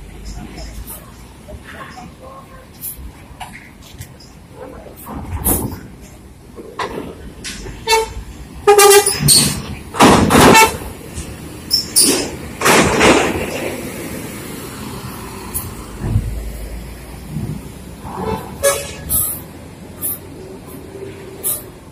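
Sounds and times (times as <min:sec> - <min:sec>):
bus engines idling: 0:00.0 - 0:21.9
bus horn tooting: 0:07.8 - 0:09.4, 0:10.3 - 0:10.9, 0:18.2 - 0:19.4.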